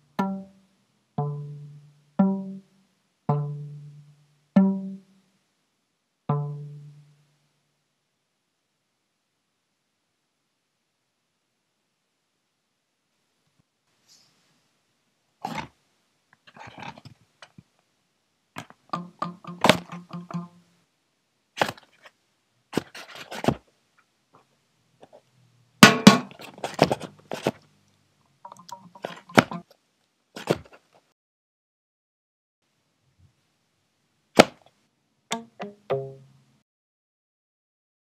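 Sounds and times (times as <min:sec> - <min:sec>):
sharp clicks and knocks: 0:18.6 - 0:20.5.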